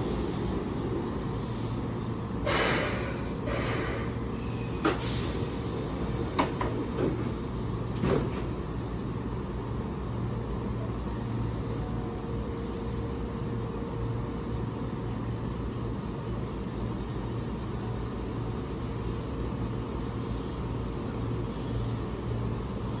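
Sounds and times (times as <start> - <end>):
air hiss: 0.0 - 9.2
electric train humming: 0.0 - 23.0.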